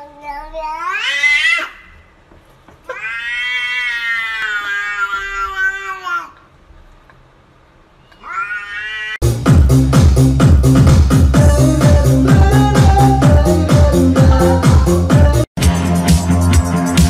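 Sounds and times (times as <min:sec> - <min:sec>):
cat meowing: 0:02.9 - 0:06.4, 0:08.1 - 0:09.2
electronic dance music: 0:09.2 - 0:17.0.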